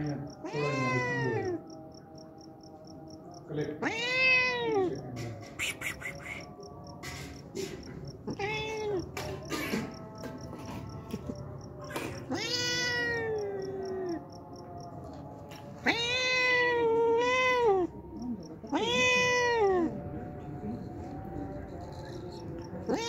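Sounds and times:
cat meowing: 0.3s - 1.8s, 3.8s - 6.6s, 8.2s - 10.2s, 11.9s - 14.2s, 15.8s - 20.0s, 22.3s - 23.0s.

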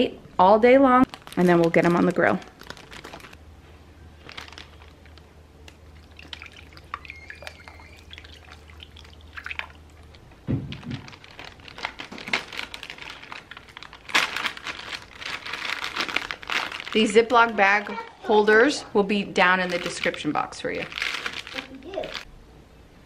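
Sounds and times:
plastic bag rustling: 1.0s - 3.4s, 4.1s - 22.3s
dull thump: 10.4s - 11.1s.

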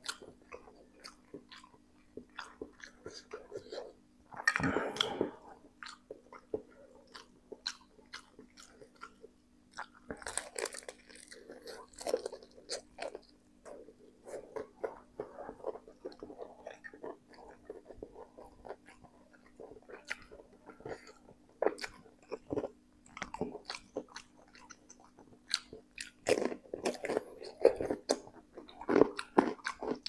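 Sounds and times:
faint steady hum: 0.0s - 30.0s
wet chewing and smacking: 0.0s - 30.0s
crunchy bites: 9.8s - 13.3s.

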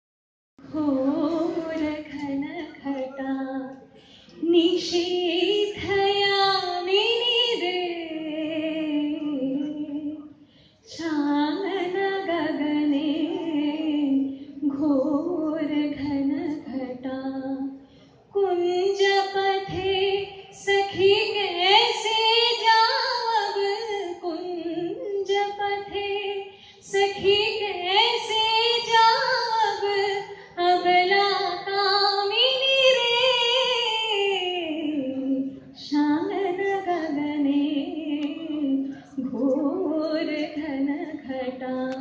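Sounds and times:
woman singing into a microphone: 0.6s - 42.0s.

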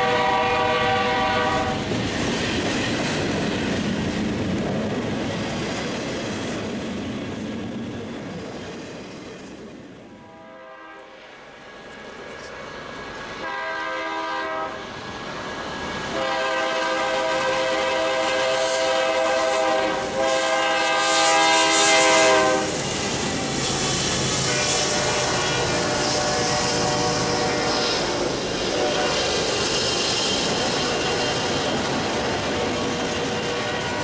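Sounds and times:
locomotive air horn blasts: 0.0s - 1.8s, 10.2s - 11.2s, 13.4s - 14.8s, 16.1s - 22.8s, 24.4s - 28.0s, 28.7s - 29.2s, 32.6s - 34.0s
locomotives rumbling past: 0.0s - 10.1s, 20.0s - 34.0s.

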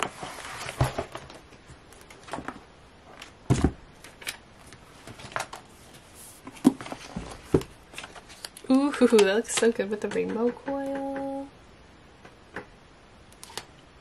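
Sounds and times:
pages rustling: 0.0s - 8.6s.

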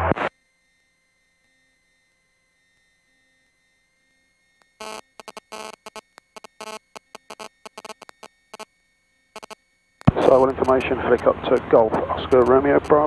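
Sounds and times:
radio clicks: 4.6s - 8.3s, 9.4s - 13.0s
radio static bursts: 4.8s - 8.7s, 9.4s - 13.0s.

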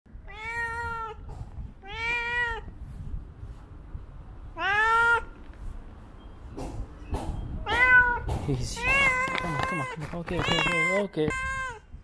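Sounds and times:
cat meowing: 0.2s - 2.7s, 4.5s - 5.4s, 7.6s - 11.9s.

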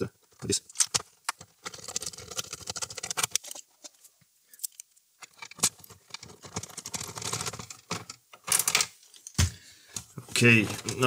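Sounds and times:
screwdriver clicking and scraping: 0.7s - 3.6s.

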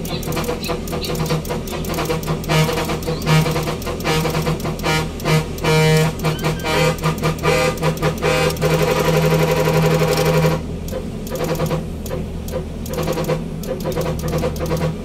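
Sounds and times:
musical horn playing a tune: 0.2s - 10.6s, 11.3s - 12.2s.

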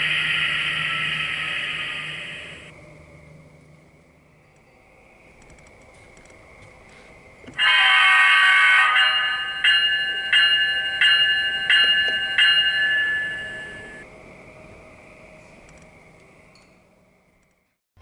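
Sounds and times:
locomotive bell ringing: 0.0s - 2.7s, 7.6s - 14.0s
locomotive horn blast: 7.6s - 9.3s.

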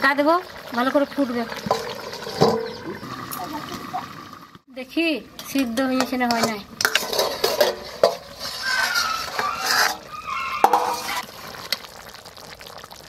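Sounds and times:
curry simmering hiss: 0.0s - 13.0s
metal lid clinking and scraping: 1.6s - 2.8s, 5.4s - 11.8s.

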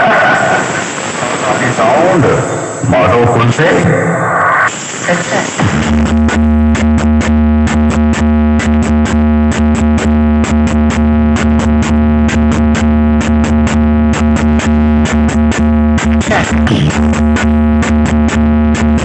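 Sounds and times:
loud electronic music: 5.5s - 19.0s.

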